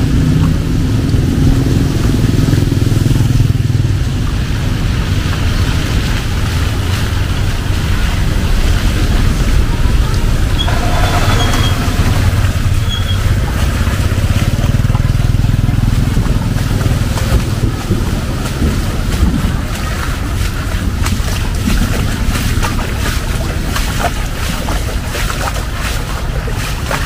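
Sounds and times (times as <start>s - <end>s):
passing vehicles rumbling: 0.0s - 25.1s
heavy rain hissing: 4.2s - 14.6s.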